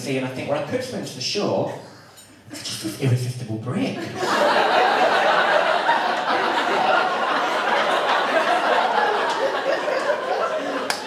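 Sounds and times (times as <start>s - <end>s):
audience laughing: 4.0s - 11.0s.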